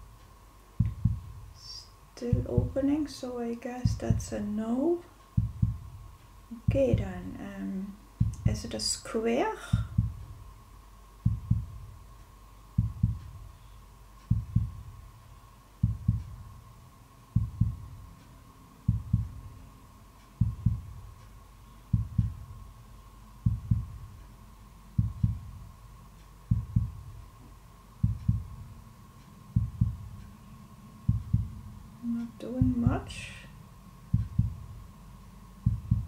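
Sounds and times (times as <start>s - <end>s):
heartbeat double thump: 0.8s - 3.0s, 3.8s - 4.4s, 5.3s - 7.4s, 8.1s - 8.9s, 9.6s - 10.6s, 11.2s - 12.1s, 12.7s - 13.6s, 14.2s - 15.2s, 15.8s - 16.7s, 17.3s - 18.2s, 18.8s - 19.6s, 20.4s - 21.3s, 21.9s - 22.8s, 23.4s - 24.2s, 24.9s - 25.8s, 26.4s - 27.3s, 28.0s - 28.8s, 29.4s - 30.4s, 31.0s - 33.4s, 34.0s - 35.0s, 35.6s - 36.0s.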